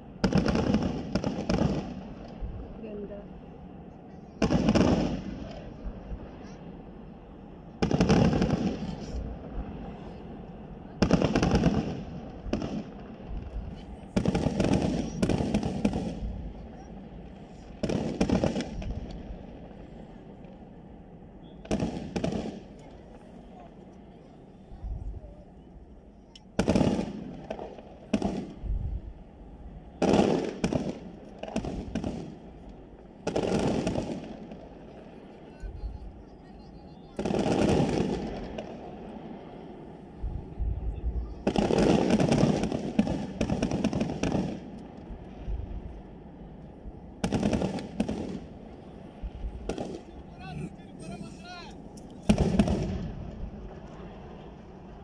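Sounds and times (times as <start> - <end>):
fireworks bursting: 0.0 - 55.0
low rumble: 28.5 - 30.0.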